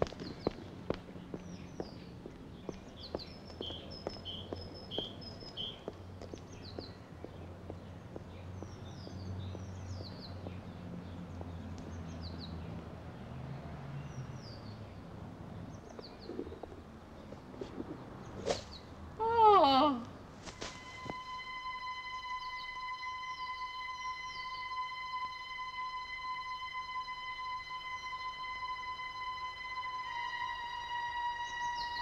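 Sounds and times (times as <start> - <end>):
footsteps on a path: 0.0 - 12.0, 20.4 - 21.3
songbirds chirping: 0.0 - 32.0
low steady hum: 15.8 - 32.0.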